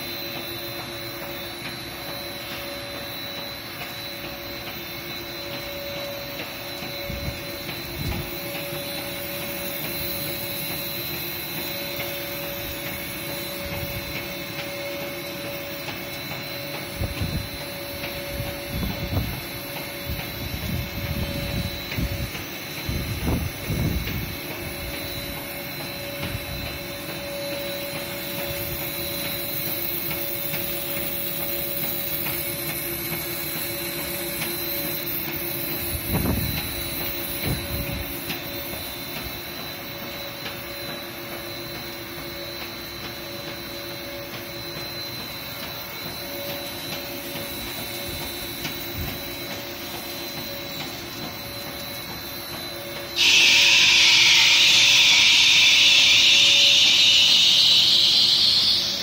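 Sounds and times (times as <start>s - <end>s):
lathe running with whine: 0.0s - 59.0s.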